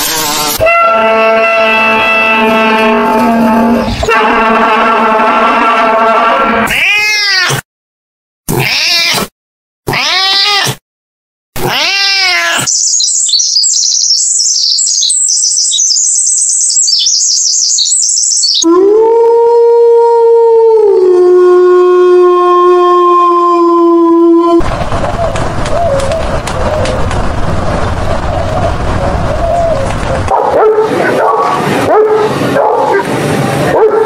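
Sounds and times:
songbird chirping rapidly: 12.7s - 18.6s
wolf howling: 18.6s - 27.0s
rising and falling animal calls: 24.5s - 27.2s, 28.2s - 30.3s.

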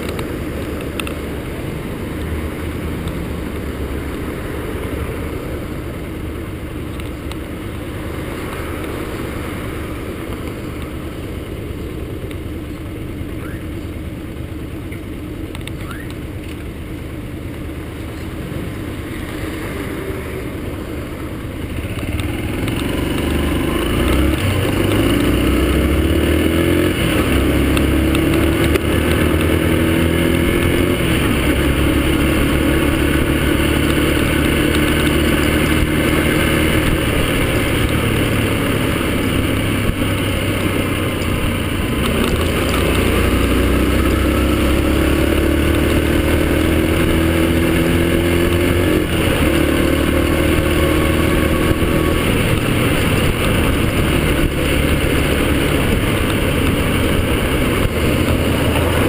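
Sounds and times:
motorcycle engine revving: 18.6s - 59.0s.

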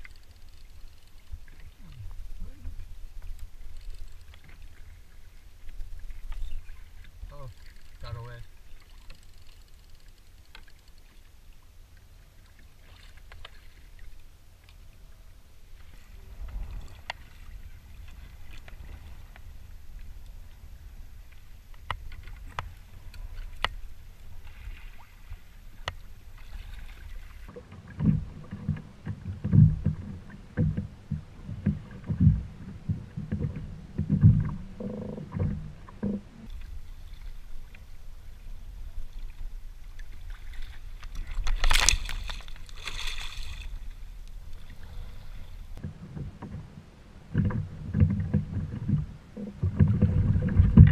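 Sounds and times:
water noise: 0.0s - 50.9s
wind noise: 15.8s - 27.4s, 36.5s - 50.9s
dull knocks and thumps: 28.0s - 36.3s.

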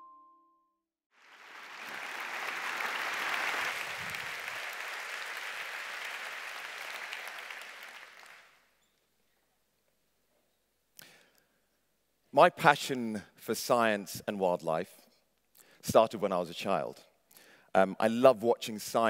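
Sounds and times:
audience applauding: 1.2s - 8.7s.

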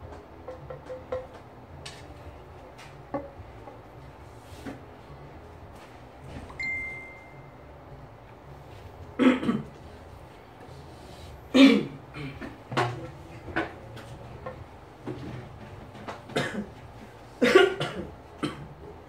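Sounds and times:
brief high steady tone: 6.6s - 7.7s.

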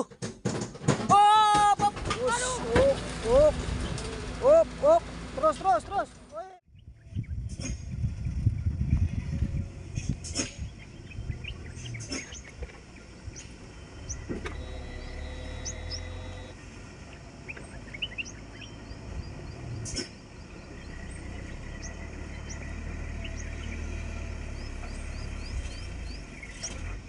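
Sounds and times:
sharp knocks: 0.0s - 2.9s
distant diesel truck engine: 2.0s - 6.6s, 10.0s - 27.0s
birds chirping: 5.2s - 27.0s.

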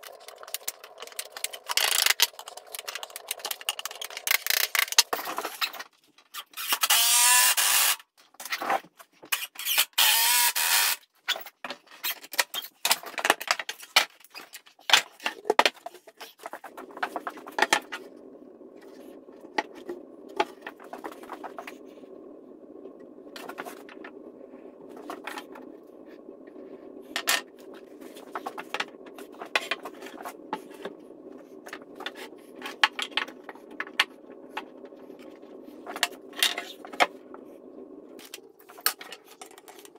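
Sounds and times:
steady low hum: 16.5s - 39.8s.

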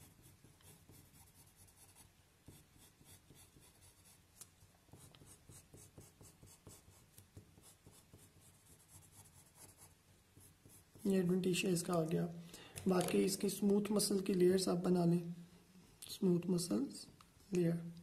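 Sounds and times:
pencil scratching on paper: 0.0s - 4.2s, 4.9s - 11.3s.

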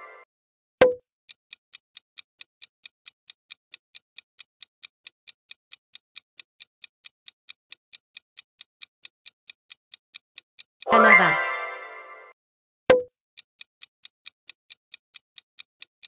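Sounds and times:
clock-like timer ticks: 0.8s - 10.9s, 12.9s - 16.0s.

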